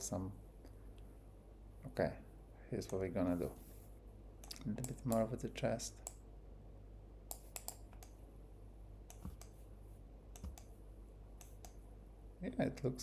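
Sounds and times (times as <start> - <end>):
low room hum: 0.0 - 13.0
keyboard and mouse clicks: 7.3 - 8.2, 9.1 - 9.6, 10.3 - 10.8, 11.4 - 11.8.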